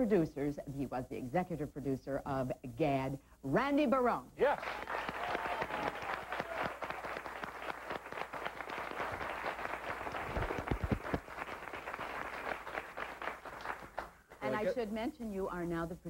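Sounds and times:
audience applauding: 0:04.4 - 0:14.7.

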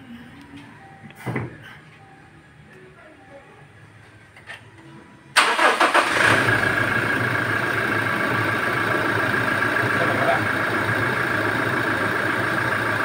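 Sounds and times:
engine cranking: 0:05.4 - 0:06.8
engine idling: 0:05.4 - 0:13.0.

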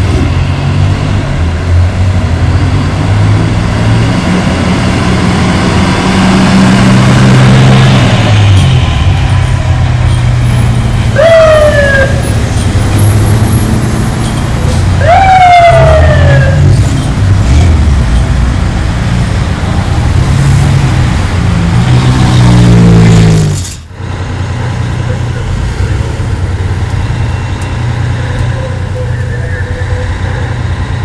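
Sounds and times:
diesel truck engine: 0:00.0 - 0:31.0
siren chirps: 0:11.1 - 0:12.4.

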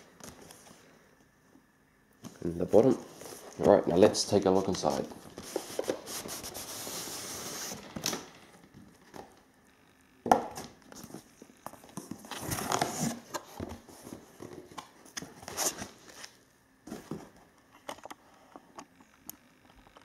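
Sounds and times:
cardboard and foam rustling: 0:02.3 - 0:08.1, 0:11.0 - 0:17.4.

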